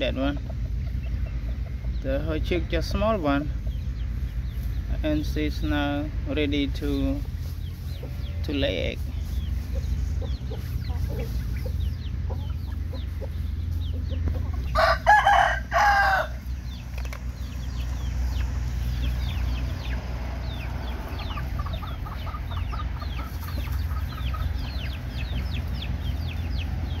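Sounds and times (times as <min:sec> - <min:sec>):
chicken clucking: 0:00.0 - 0:27.0
rooster crowing: 0:14.6 - 0:16.5.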